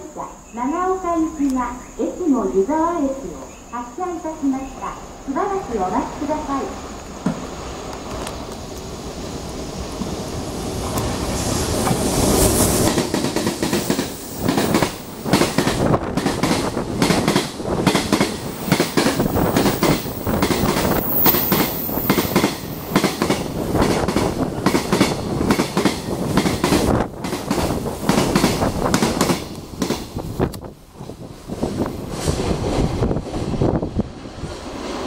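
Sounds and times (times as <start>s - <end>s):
freight train wheels clattering: 10.8s - 33.5s.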